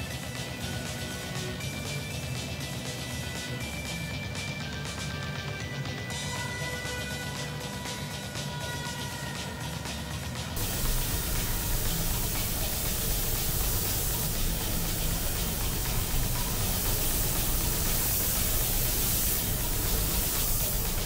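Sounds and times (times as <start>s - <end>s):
paint spray gun hissing: 10.6s - 21.0s.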